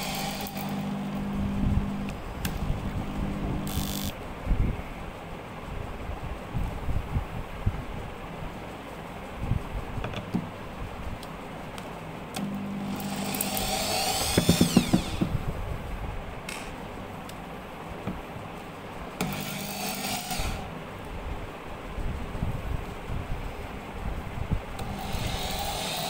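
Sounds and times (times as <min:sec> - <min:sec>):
power drill driving screws: 0:00.0 - 0:01.0, 0:03.6 - 0:04.2, 0:12.8 - 0:15.4, 0:19.2 - 0:20.7, 0:24.8 - 0:26.0
sharp drill clicks: 0:00.0 - 0:01.2, 0:03.6 - 0:04.2, 0:12.4 - 0:15.4, 0:19.2 - 0:20.7, 0:24.8 - 0:26.0.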